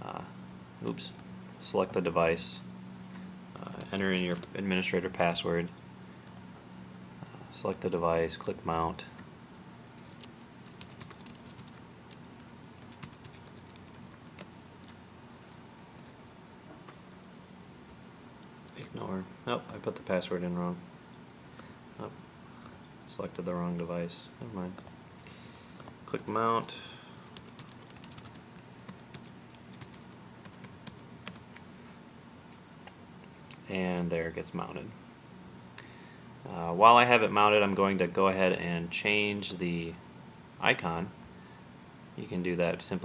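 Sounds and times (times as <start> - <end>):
typing on keyboard: 3.6 - 4.6, 10.0 - 12.2, 12.8 - 16.2, 27.2 - 31.4.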